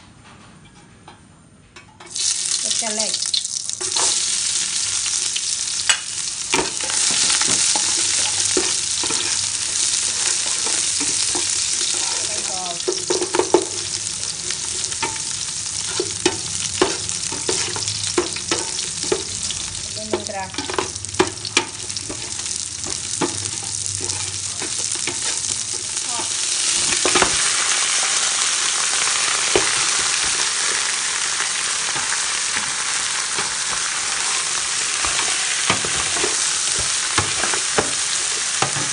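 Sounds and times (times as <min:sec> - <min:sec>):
aromatics sizzling in hot oil: 0:02.0 - 0:38.9
metal ladle scraping a pot: 0:20.5 - 0:27.6.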